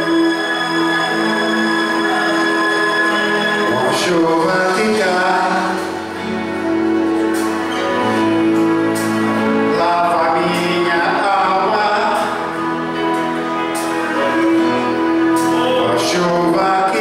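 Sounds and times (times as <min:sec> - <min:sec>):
instrumental accompaniment: 0:00.0 - 0:17.0
man singing a hymn: 0:03.5 - 0:06.1, 0:09.6 - 0:12.6, 0:15.4 - 0:17.0.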